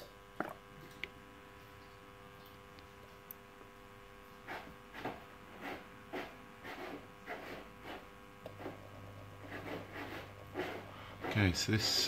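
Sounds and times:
faint hum: 0.0 - 12.0
low steady hum: 0.0 - 12.0.

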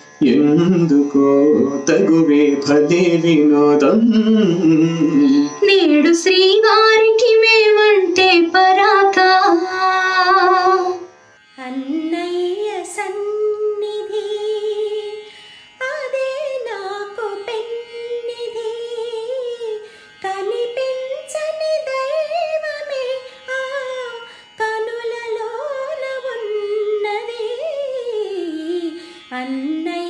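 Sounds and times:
woman singing a slow melody: 5.1 - 11.0, 11.6 - 15.2, 15.8 - 30.0.

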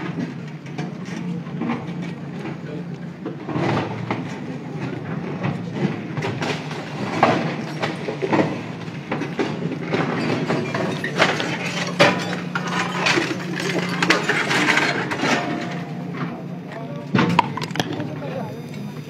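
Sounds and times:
diesel engine under load: 0.0 - 18.9
debris and metal knocking: 6.4 - 16.3.

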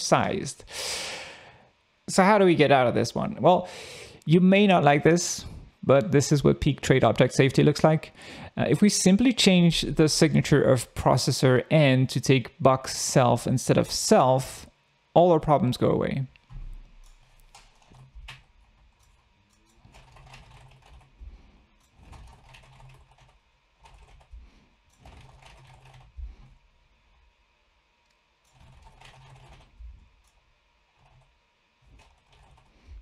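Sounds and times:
typing on computer keyboard: 17.1 - 21.2, 21.9 - 24.3, 25.0 - 26.1, 28.5 - 29.7, 31.9 - 32.7.

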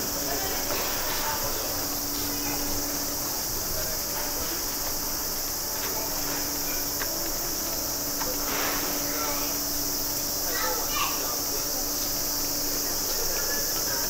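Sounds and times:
faint voices of passers-by: 0.0 - 14.0.

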